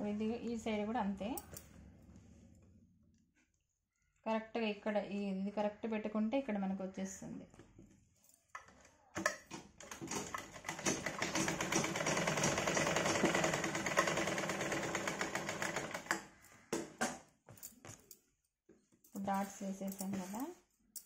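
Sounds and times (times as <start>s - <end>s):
sewing machine stitching: 9.8s - 16.2s.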